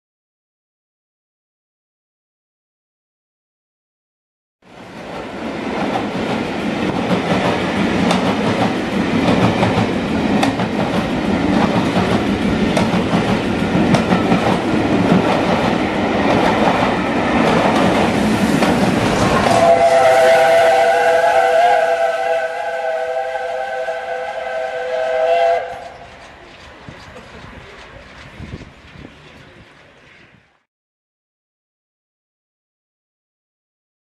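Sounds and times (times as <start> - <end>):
train coaches rumbling: 4.7 - 30.7
steam locomotive chime whistle: 19.4 - 26.2
wheels clicking over rail joints: 25.7 - 30.4.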